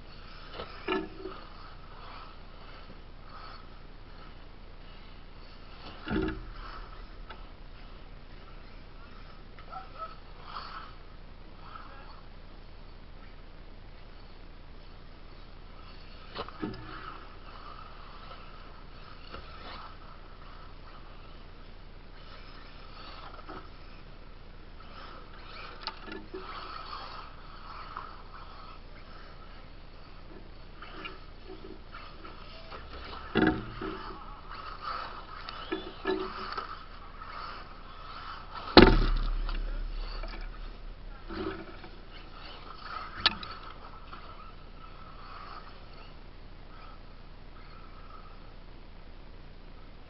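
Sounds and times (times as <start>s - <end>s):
rc buggy motor and tyres: 0.0s - 50.0s
loud thump with low rumble: 38.8s - 41.2s.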